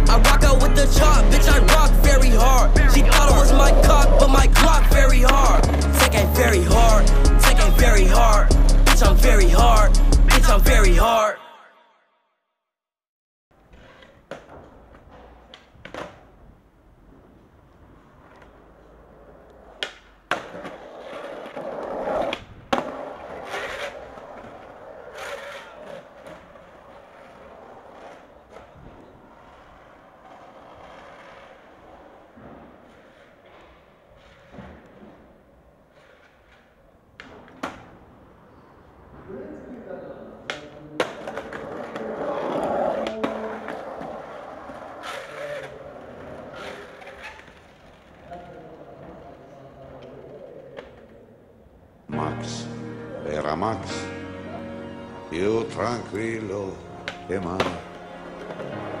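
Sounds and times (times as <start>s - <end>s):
skateboard wheels rolling: 0.2s - 10.8s, 13.6s - 52.1s, 55.8s - 59.0s
skateboard landing on asphalt: 19.8s - 27.3s.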